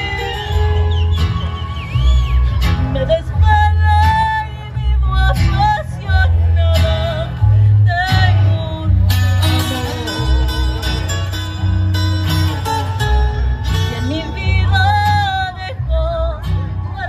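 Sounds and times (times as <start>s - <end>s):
woman singing into microphone: 2.8s - 10.4s, 13.9s - 17.0s.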